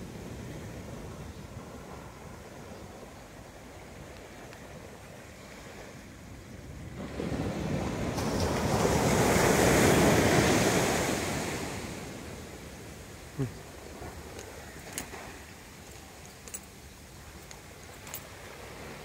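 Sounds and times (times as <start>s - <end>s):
ocean wave breaking on beach: 4.8s - 15.8s.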